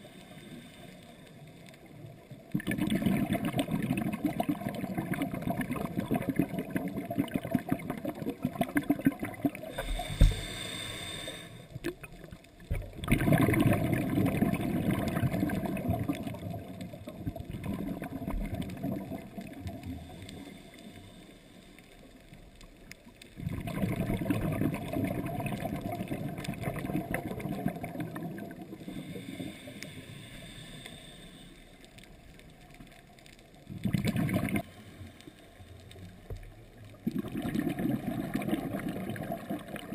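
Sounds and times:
regulator bubbles gurgling: 2.3 - 10.6, 11.8 - 20.5, 23.3 - 29.4, 33.6 - 34.7, 36.2 - 39.9
regulator inhalation hiss: 9.7 - 11.8, 29.0 - 31.8.

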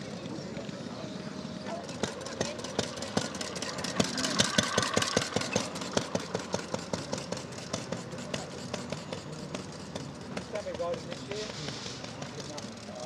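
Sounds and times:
motorcycle engine popping exhaust: 1.7 - 13.0.

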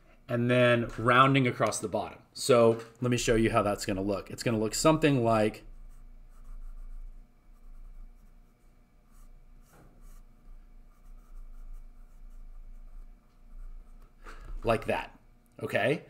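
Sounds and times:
pencil scratching on paper: 5.6 - 14.4.

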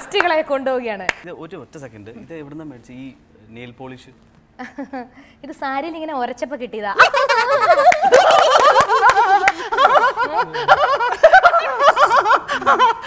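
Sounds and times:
woman laughing hard: 7.0 - 13.0.

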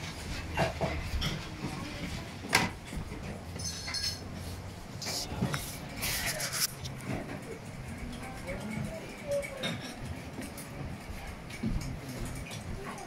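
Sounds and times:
dishes and cutlery clinking: 0.0 - 13.0
scattered voices: 4.7 - 13.0.

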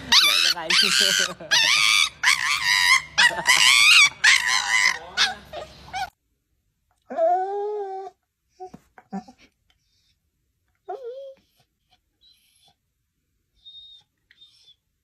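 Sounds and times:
puppy crying: 0.0 - 6.2, 7.0 - 10.1, 10.8 - 12.8.

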